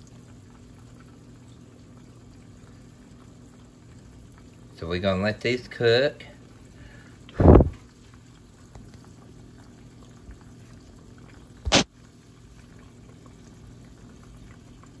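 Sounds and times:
oil bubbling sizzle: 0.0 - 15.0
loud thump: 11.7 - 11.9.

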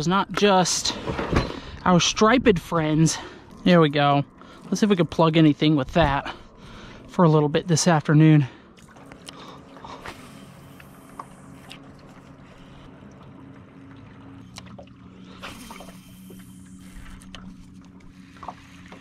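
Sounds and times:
boat motor humming: 0.0 - 19.0.

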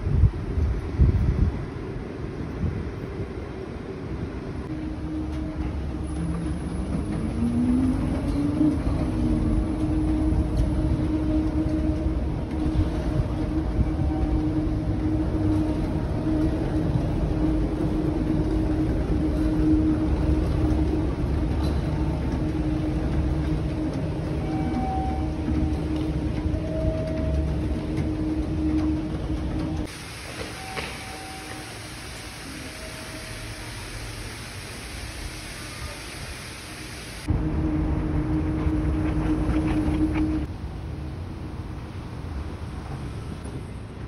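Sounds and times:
vehicles rumbling: 4.6 - 29.9.

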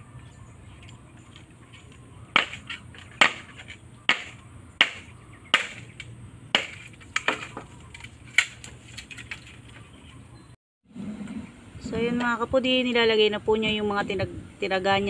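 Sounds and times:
tool striking bamboo: 2.3 - 9.6.

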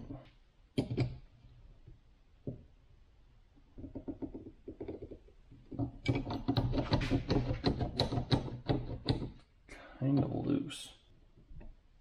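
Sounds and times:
sharp clicking and scraping: 4.8 - 9.4.

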